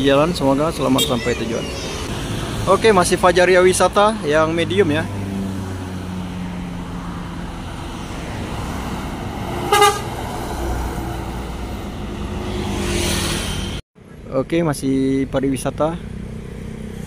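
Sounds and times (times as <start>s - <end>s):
bus diesel engine rumble: 0.0s - 5.1s, 6.4s - 12.5s
bus horn toot: 9.6s - 10.2s.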